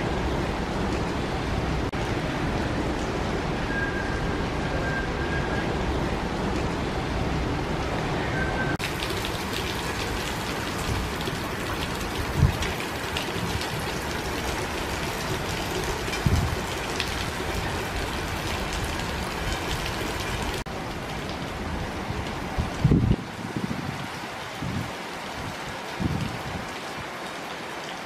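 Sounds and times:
rain hissing: 0:00.0 - 0:28.0.

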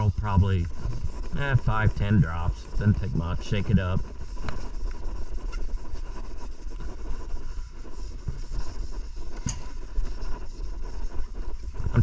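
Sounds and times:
wet sandpaper scrubbing: 0:00.0 - 0:12.0.

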